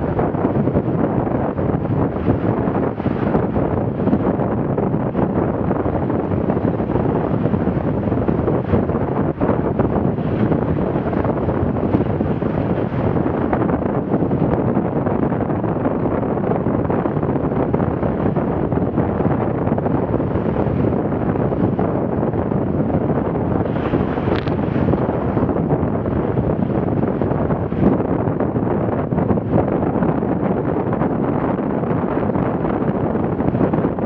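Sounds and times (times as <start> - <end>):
water rushing along hull: 0.0 - 34.0
wind buffeting microphone: 0.0 - 34.0.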